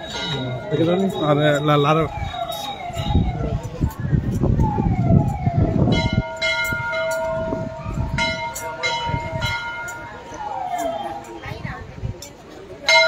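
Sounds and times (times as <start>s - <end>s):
large metal bell struck: 0.0s - 2.0s, 5.9s - 11.5s.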